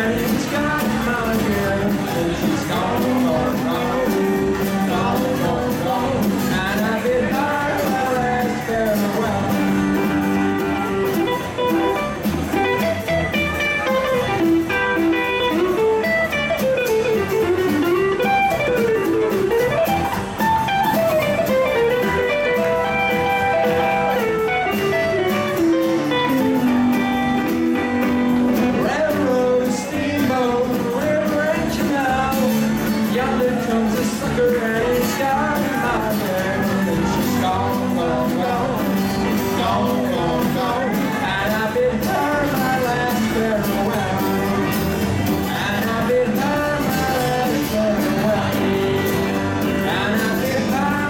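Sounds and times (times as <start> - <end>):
drums: 0.0 - 51.0
electric guitar lead line: 0.0 - 51.0
strummed acoustic guitar: 0.0 - 51.0
upright double bass: 0.0 - 51.0.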